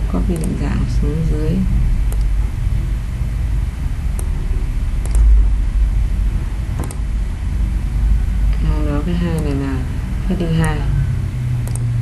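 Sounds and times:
low background rumble: 0:00.0 - 0:12.0
computer mouse clicks: 0:00.3 - 0:00.6, 0:02.1 - 0:02.3, 0:05.0 - 0:05.3, 0:06.8 - 0:07.1, 0:09.4 - 0:09.6, 0:11.6 - 0:11.9.

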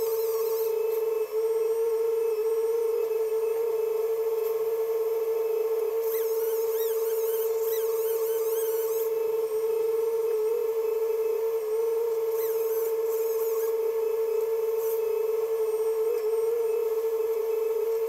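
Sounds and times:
steady high-pitched whine: 0:00.0 - 0:18.0
faint warbling high squeaks: 0:06.0 - 0:09.1.

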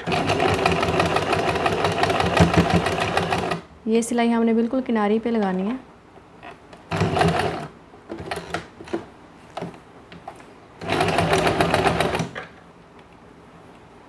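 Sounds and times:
sewing machine stitching: 0:00.0 - 0:03.6, 0:06.9 - 0:08.6, 0:10.8 - 0:12.5.

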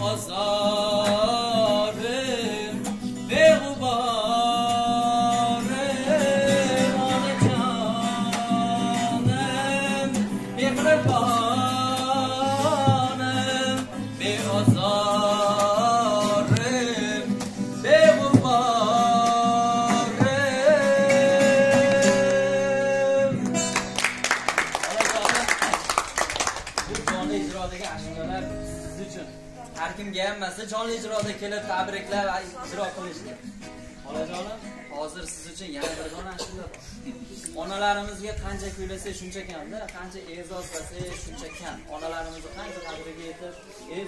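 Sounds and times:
man singing: 0:00.0 - 0:23.7
strummed acoustic guitar: 0:00.0 - 0:24.5, 0:27.0 - 0:37.8.

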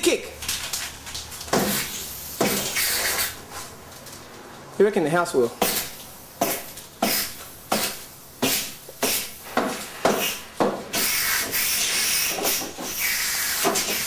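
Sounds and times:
spray-paint can hissing: 0:01.6 - 0:03.4, 0:05.6 - 0:14.0.

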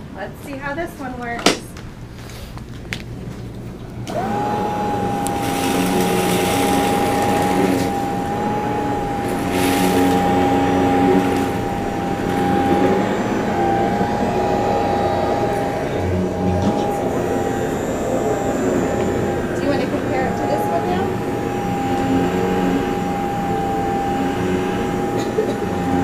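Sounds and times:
vacuum sucking up crumbs: 0:02.1 - 0:26.0
vacuum cleaner motor whining: 0:02.2 - 0:26.0.

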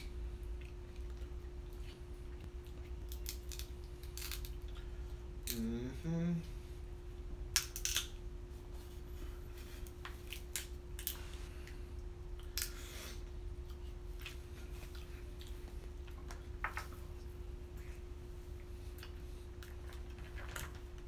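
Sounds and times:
faint steady hum: 0:00.0 - 0:21.0
crab shells cracking: 0:03.0 - 0:04.7, 0:07.6 - 0:08.1.

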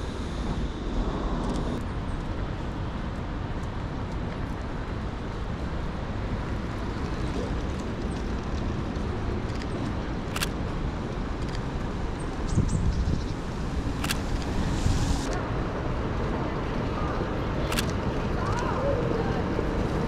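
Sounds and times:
road traffic rumble: 0:00.0 - 0:20.0
sharp clicks: 0:09.4 - 0:11.7, 0:13.9 - 0:15.4, 0:17.7 - 0:18.6.

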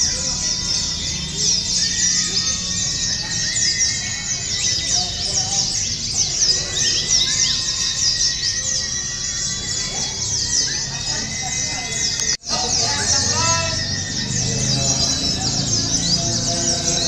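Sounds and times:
birds twittering high chirps: 0:00.0 - 0:17.0.

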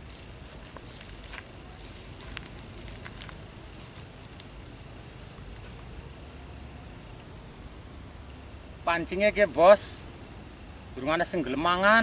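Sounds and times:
footsteps on grass: 0:00.0 - 0:05.9.

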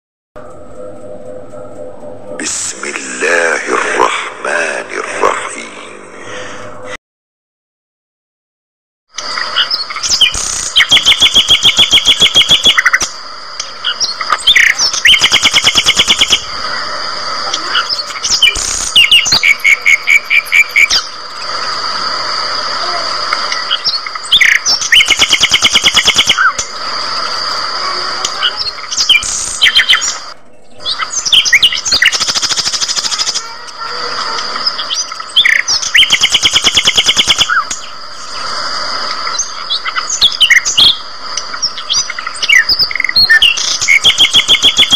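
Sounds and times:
budgerigars chirping and chattering: 0:09.4 - 0:16.4, 0:17.7 - 0:21.2, 0:23.6 - 0:27.1, 0:28.2 - 0:36.5, 0:39.4 - 0:44.9.

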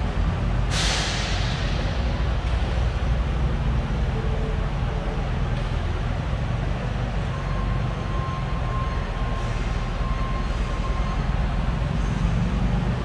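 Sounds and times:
low rumble of factory hall: 0:00.0 - 0:13.0
faint steady high tone: 0:06.8 - 0:12.2.

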